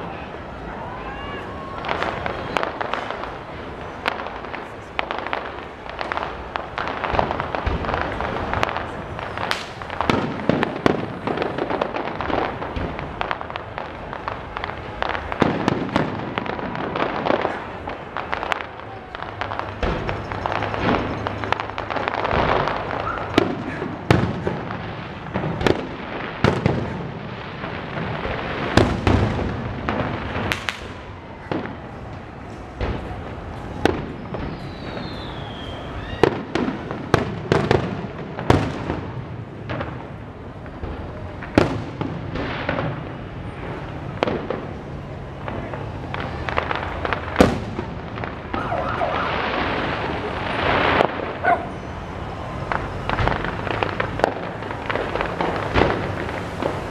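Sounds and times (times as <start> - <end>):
firework shells bursting: 4.3 - 36.9.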